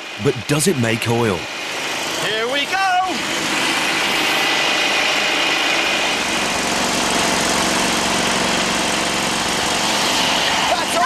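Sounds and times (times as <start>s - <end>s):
small engine running under load: 0.0s - 11.0s
steady high whine: 0.0s - 11.0s.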